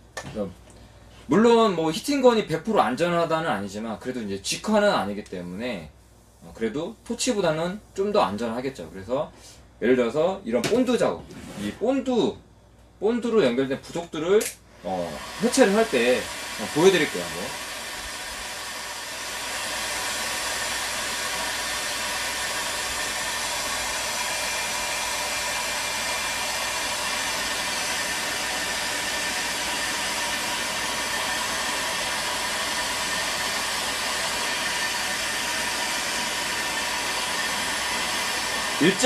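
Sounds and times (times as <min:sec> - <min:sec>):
heat gun blowing air: 0:14.8 - 0:39.0.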